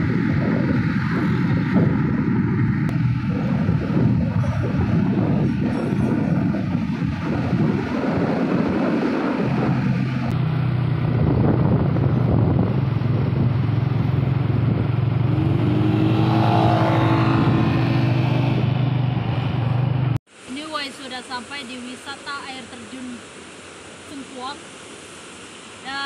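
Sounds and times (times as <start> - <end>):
low engine hum: 0.0 - 20.5
wind and road rush: 0.0 - 26.0.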